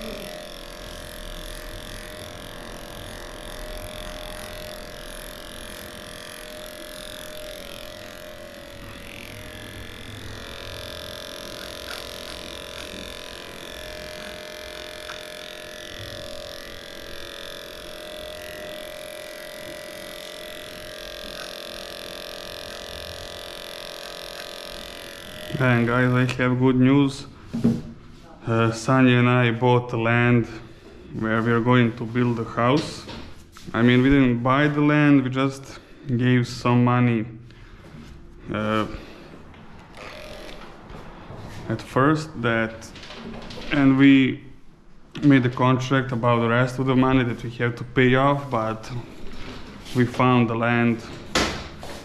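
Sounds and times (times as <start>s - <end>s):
electric clipper humming: 0.0s - 27.1s, 38.6s - 41.6s, 45.1s - 52.0s.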